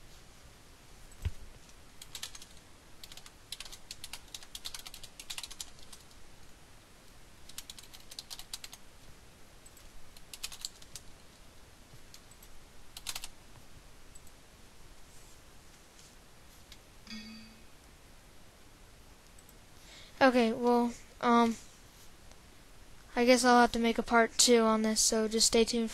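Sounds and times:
computer keyboard typing: 0:02.0 - 0:06.2, 0:07.4 - 0:08.8, 0:09.7 - 0:11.1, 0:12.1 - 0:13.3.

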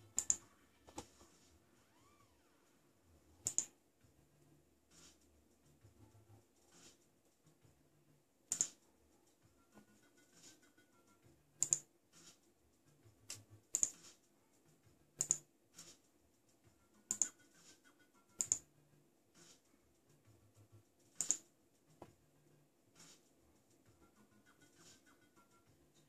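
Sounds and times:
computer key clicks: 0:00.2 - 0:00.4, 0:03.4 - 0:03.7, 0:08.5 - 0:08.8, 0:11.6 - 0:11.8, 0:13.7 - 0:13.9, 0:15.2 - 0:15.4, 0:18.4 - 0:18.6, 0:21.2 - 0:21.4.

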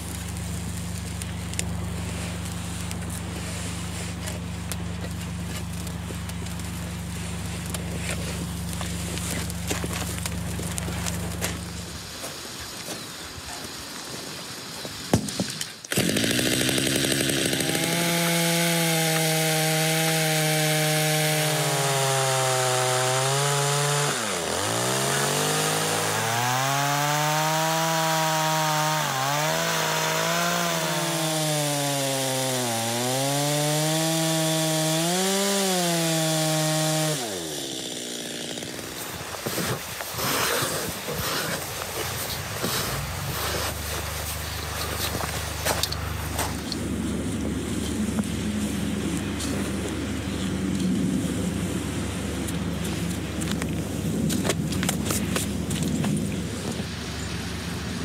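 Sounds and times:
chainsaw cutting log: 0:00.0 - 0:12.2, 0:15.2 - 0:46.9.

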